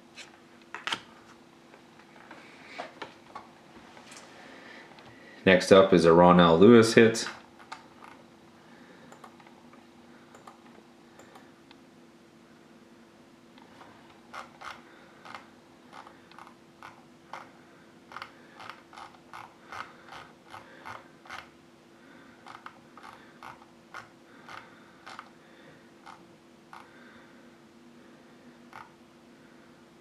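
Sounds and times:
faint steady hum: 0.0s - 30.0s
computer mouse scroll clicks: 7.6s - 8.2s, 9.1s - 9.6s, 10.3s - 11.5s, 14.3s - 17.5s, 18.1s - 21.5s, 22.4s - 25.3s, 26.0s - 26.9s, 28.7s - 29.0s.

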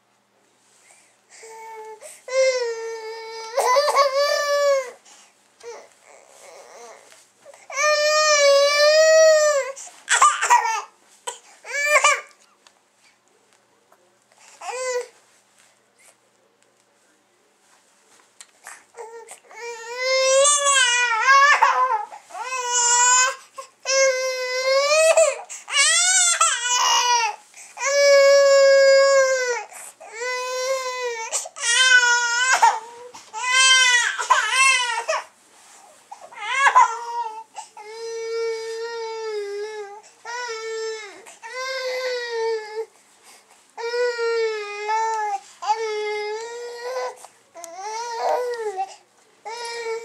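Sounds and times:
baby crying: 19.0s - 35.3s, 36.2s - 42.9s.

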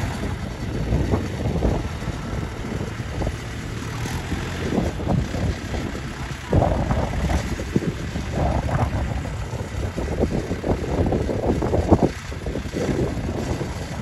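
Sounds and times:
tractor diesel engine running: 0.0s - 14.0s
wind buffeting microphone: 0.0s - 14.0s.

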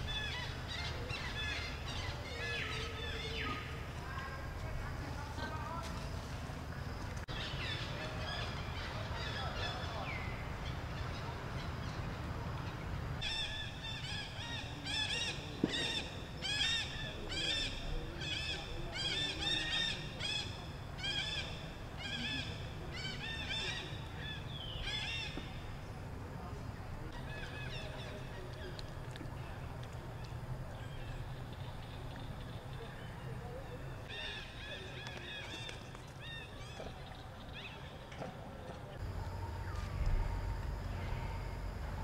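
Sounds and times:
steady low rumble: 39.0s - 42.0s.

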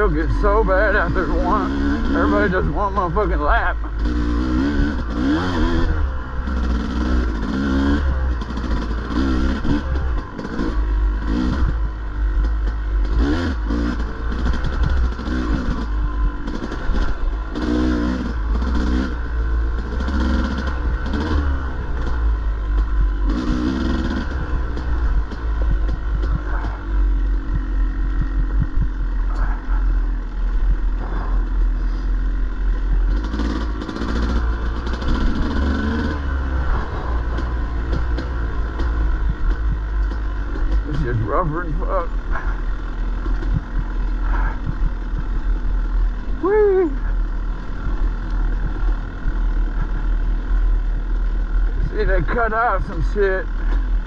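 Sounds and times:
dirt bike engine revving: 0.0s - 54.0s
steady low rumble: 0.0s - 54.0s.

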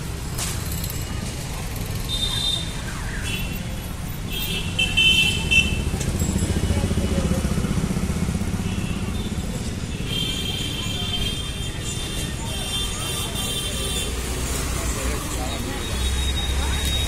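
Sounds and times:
street traffic: 0.0s - 17.0s
motorcycle engine running: 5.7s - 10.0s.

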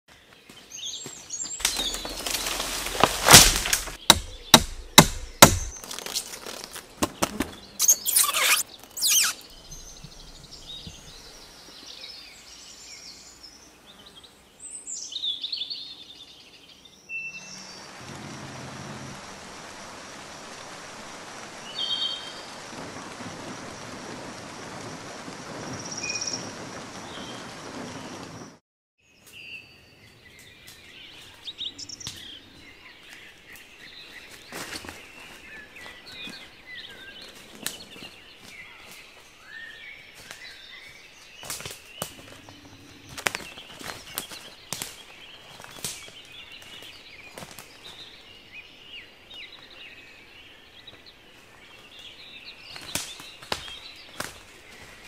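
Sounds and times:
birds chirping: 0.1s - 18.5s, 29.1s - 55.0s
sharp knocks and cracks: 1.6s - 7.6s, 52.7s - 54.4s.

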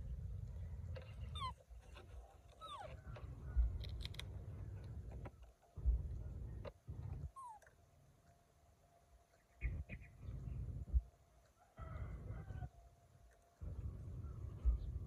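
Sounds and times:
wind rumbling on microphone: 0.0s - 7.4s, 9.6s - 11.1s, 13.6s - 15.0s.

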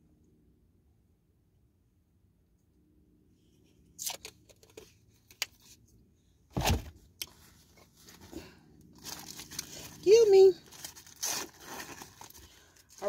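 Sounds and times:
heavy thump: 6.5s - 6.9s.

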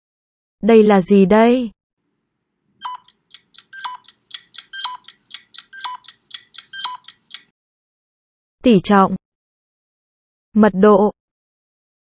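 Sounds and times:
short beeps: 2.8s - 7.2s
clock-like ticks: 2.8s - 7.5s.

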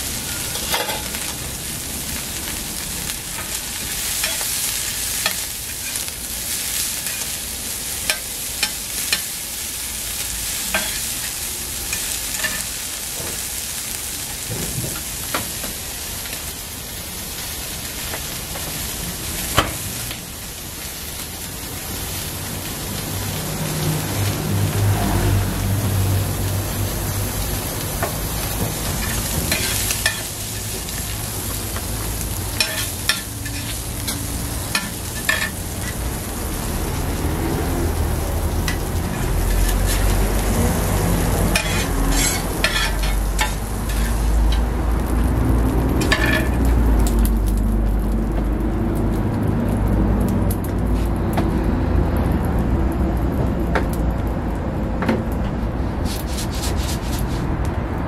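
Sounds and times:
food sizzling on griddle: 0.0s - 53.2s, 55.8s - 57.7s
metal spatula scraping griddle: 0.2s - 1.3s, 3.3s - 9.4s, 10.5s - 13.5s, 28.0s - 31.1s, 32.6s - 36.0s, 38.7s - 40.5s, 41.5s - 44.7s, 46.0s - 46.6s, 56.0s - 57.5s.

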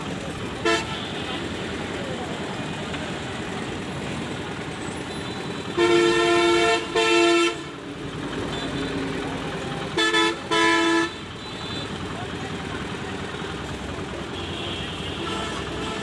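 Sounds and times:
street traffic noise: 0.0s - 16.0s
vehicle horn honking: 0.6s - 1.5s, 5.1s - 7.7s, 9.9s - 12.0s, 14.3s - 16.0s.

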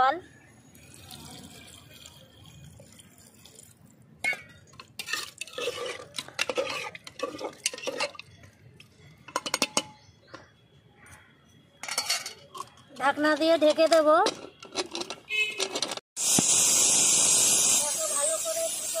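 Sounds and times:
water pouring: 0.6s - 8.5s
metal spatula scraping a pot: 4.2s - 8.5s.

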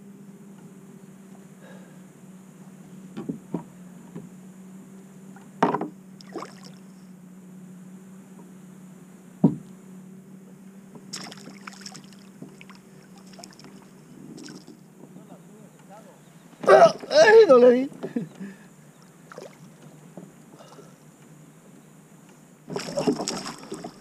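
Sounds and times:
steady low hum: 0.0s - 24.0s
fish thrashing and splashing: 11.1s - 13.8s, 22.7s - 24.0s.

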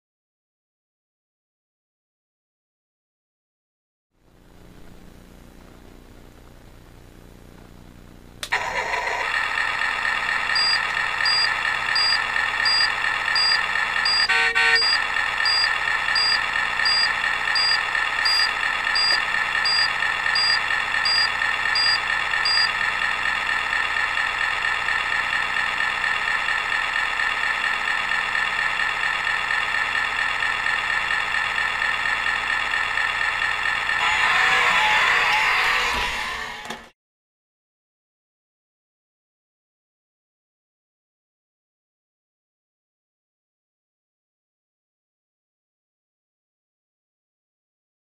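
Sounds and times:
truck engine idling: 8.5s - 35.2s
high electronic buzzer pips: 10.6s - 22.7s, 34.0s - 36.6s.

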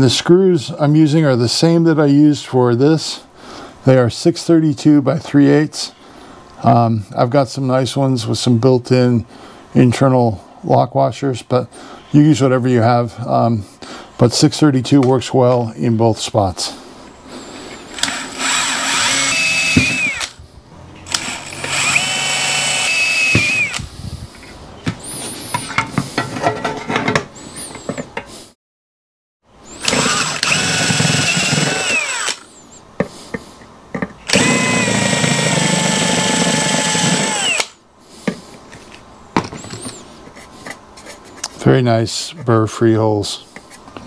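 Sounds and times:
drill boring through sheet metal: 18.0s - 20.4s, 21.1s - 23.8s, 29.7s - 32.5s, 34.3s - 37.8s.

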